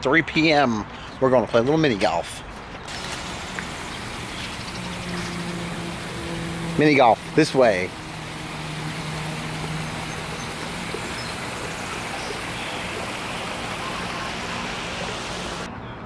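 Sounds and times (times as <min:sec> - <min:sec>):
steady rushing background noise: 0:02.9 - 0:15.7.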